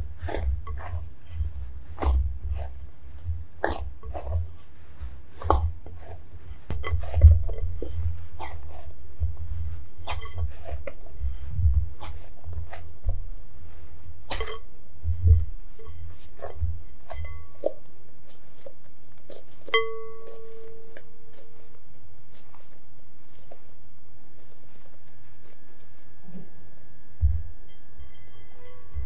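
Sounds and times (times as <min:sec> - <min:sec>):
dough kneaded by hand: 0:00.0 - 0:29.0
glass bowl clink: 0:15.8 - 0:17.8, 0:19.7 - 0:21.0, 0:27.6 - 0:29.0.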